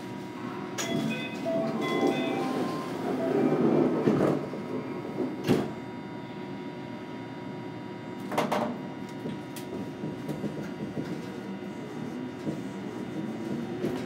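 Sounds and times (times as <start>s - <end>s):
monorail car humming: 0.0s - 8.0s, 8.8s - 14.0s.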